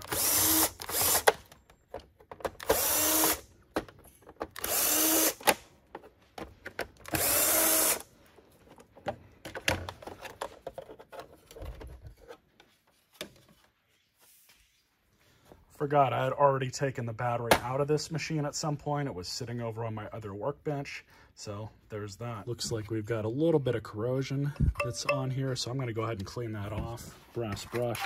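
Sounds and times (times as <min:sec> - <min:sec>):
electric screwdriver whirring: 0:00.0 - 0:01.4, 0:02.6 - 0:03.5, 0:04.6 - 0:05.6, 0:07.0 - 0:08.1.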